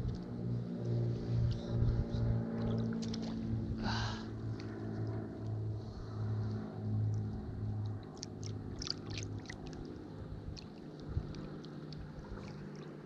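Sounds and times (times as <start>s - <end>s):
low motor hum: 0.0s - 13.0s
water splashing and trickling: 2.4s - 3.7s, 7.8s - 13.0s.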